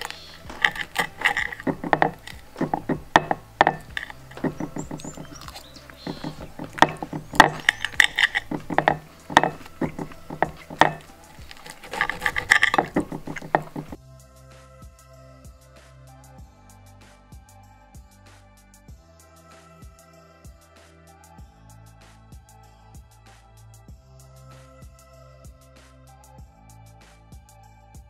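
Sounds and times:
cutlery scraping a ceramic plate: 0:00.0 - 0:14.0.

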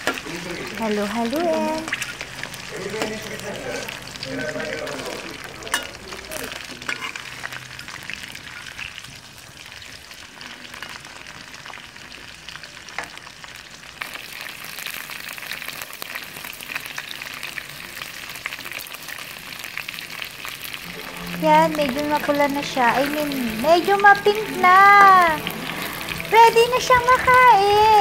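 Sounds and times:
prawns sizzling in hot oil: 0:00.0 - 0:28.0
spatula scraping a wok: 0:06.8 - 0:07.5.

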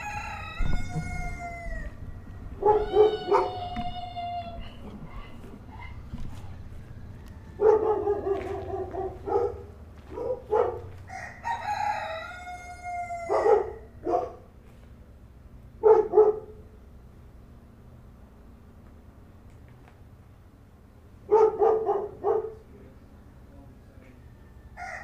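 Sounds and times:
rooster crowing: 0:00.0 - 0:09.1, 0:11.0 - 0:14.0, 0:24.0 - 0:25.0.

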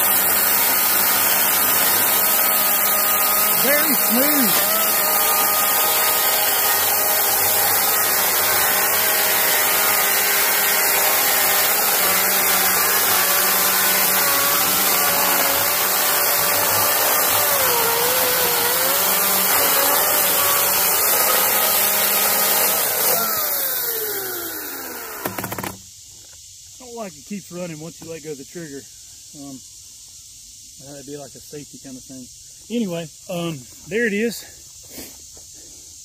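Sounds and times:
chain rasping through wood: 0:00.0 - 0:24.0
electric chainsaw motor whine: 0:00.0 - 0:25.8.

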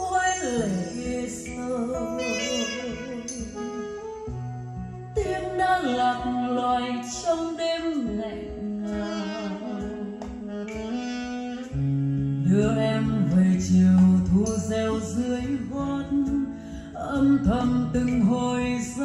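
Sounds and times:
song with singing and instruments: 0:00.0 - 0:19.0.

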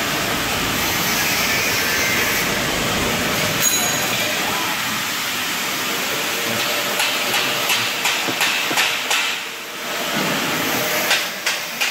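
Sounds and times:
machine hissing: 0:00.0 - 0:11.9
sharp mechanical knocks: 0:07.0 - 0:09.4.

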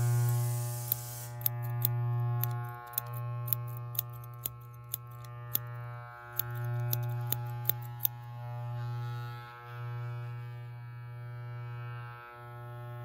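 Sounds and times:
scissors snipping hair: 0:00.0 - 0:08.2
electric hair clippers buzzing: 0:00.0 - 0:13.0.

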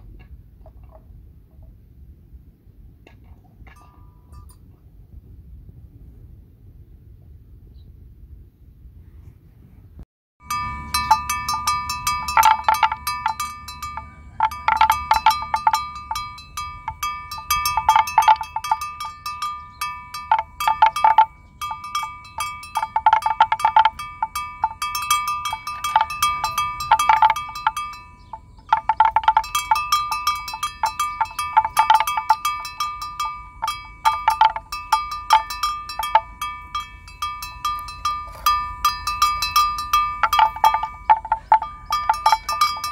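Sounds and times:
metal bell clanking: 0:03.8 - 0:04.6, 0:10.4 - 0:42.9.

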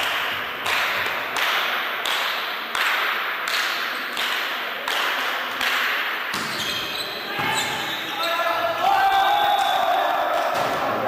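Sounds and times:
spectators clapping in rhythm: 0:00.0 - 0:06.3.

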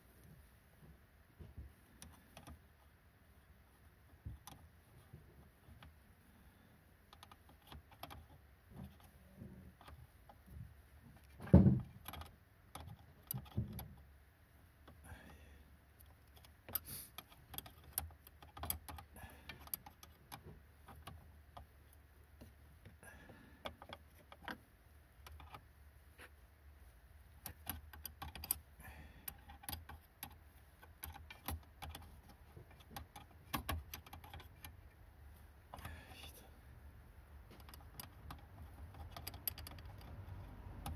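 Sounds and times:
thump: 0:11.4 - 0:11.9
metallic clicks of tools: 0:27.4 - 0:28.6, 0:37.5 - 0:40.9.

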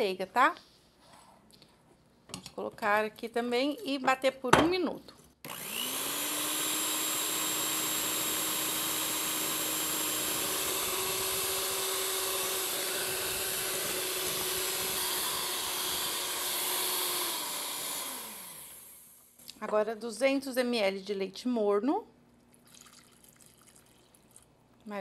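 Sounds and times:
electric mixer motor whirring: 0:05.4 - 0:19.2.

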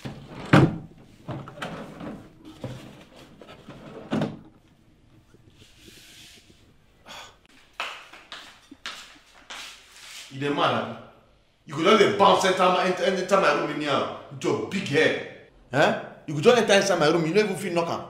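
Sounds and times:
soft knocks and rustles: 0:00.0 - 0:06.8.

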